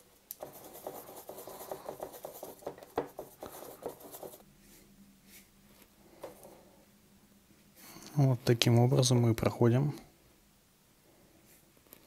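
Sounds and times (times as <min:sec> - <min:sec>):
brush scrubbing on palette: 0:00.4 - 0:05.5.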